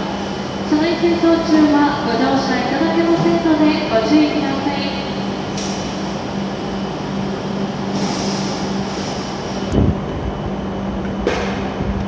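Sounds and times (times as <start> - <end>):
train equipment hiss: 7.8 - 9.6.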